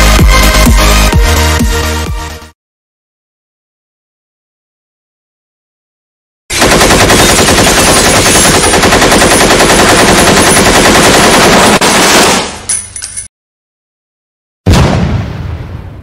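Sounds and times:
machine gun automatic fire: 6.5s - 12.6s.

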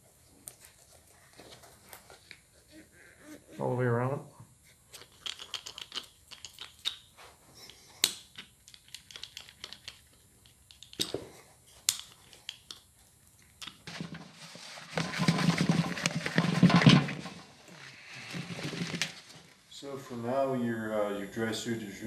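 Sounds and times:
hand roller clicking and scratching: 13.6s - 19.4s
rubber seal rubbing rustle: 13.8s - 19.7s.

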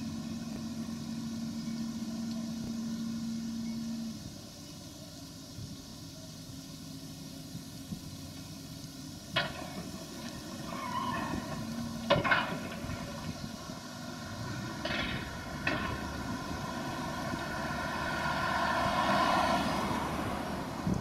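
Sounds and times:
diesel engines running under load: 0.0s - 21.0s
hydraulic whine: 0.0s - 21.0s
crashes of metal and debris: 10.7s - 13.2s.

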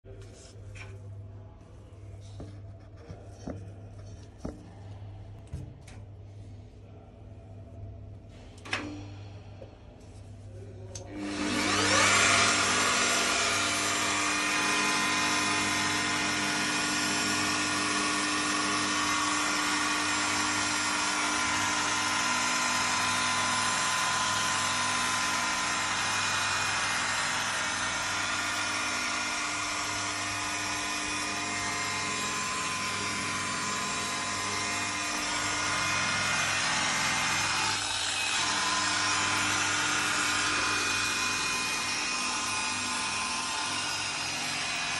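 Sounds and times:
electric polisher whining: 11.0s - 44.9s.

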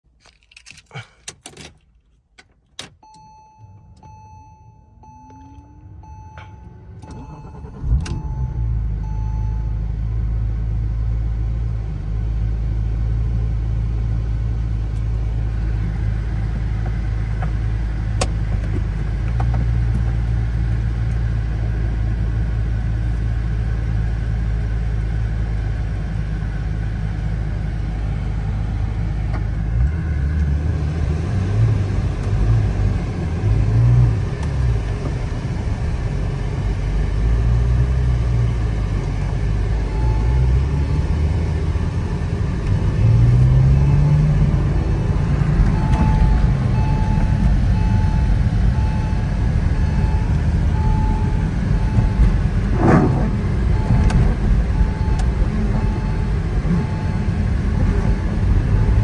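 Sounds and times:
car engine starting and idling: 0.1s - 59.0s
warning chime beeping: 3.0s - 9.8s.

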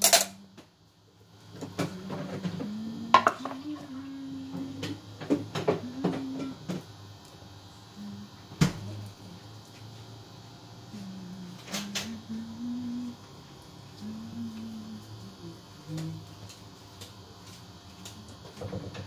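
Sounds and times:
utensils and cookware clattering: 0.0s - 0.4s
low hum: 1.4s - 16.5s.

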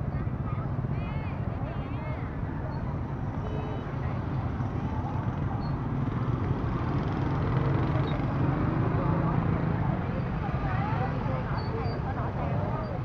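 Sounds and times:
crowd noise: 0.0s - 13.0s
motorbike engines passing: 0.0s - 13.0s
traffic din: 0.0s - 13.0s.

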